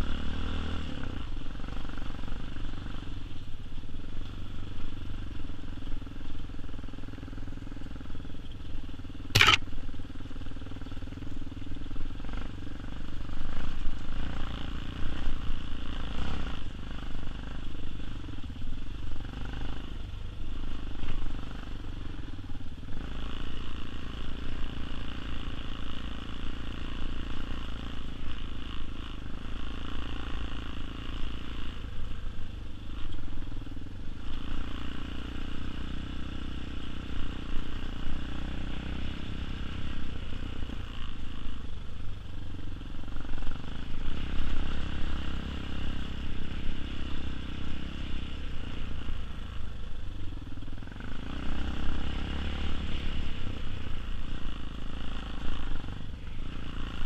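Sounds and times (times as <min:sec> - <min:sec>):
dirt bike engine running: 0:00.0 - 0:57.0
sharp knock: 0:09.4 - 0:09.6.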